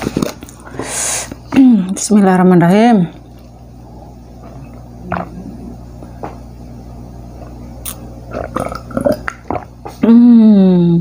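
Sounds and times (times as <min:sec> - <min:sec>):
steady low hum: 0:00.0 - 0:11.0
person swallowing water: 0:03.9 - 0:06.4, 0:07.4 - 0:10.2.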